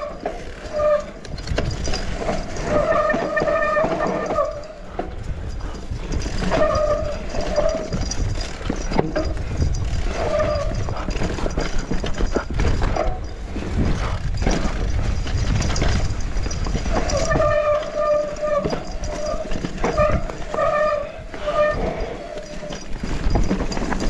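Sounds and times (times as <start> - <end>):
bike rattling over bumps: 0.0 - 24.0
wind on microphone: 1.1 - 24.0
disc brakes squealing: 2.2 - 5.0, 6.1 - 8.3, 16.8 - 23.4.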